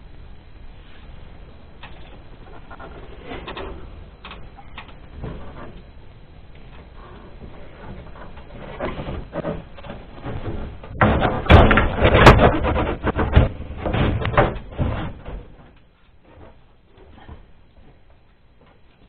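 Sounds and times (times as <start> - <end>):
panel knocking and rattling: 9.0 - 15.6.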